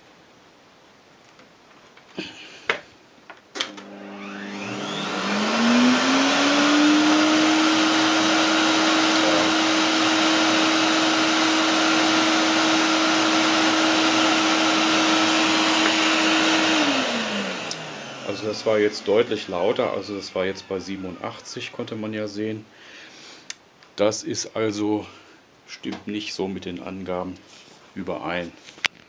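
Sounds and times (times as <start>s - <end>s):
vacuum cleaner motor whining: 3.6s - 21.8s.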